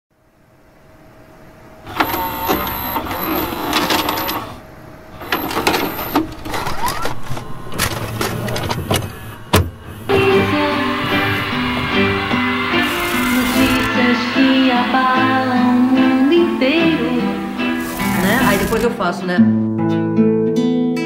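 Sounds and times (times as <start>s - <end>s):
thin high whine: 0.2s - 19.1s
video cassette recorder mechanism whirring: 1.9s - 4.6s, 5.2s - 14.7s, 16.6s - 19.0s
acoustic guitar music: 9.6s - 21.0s.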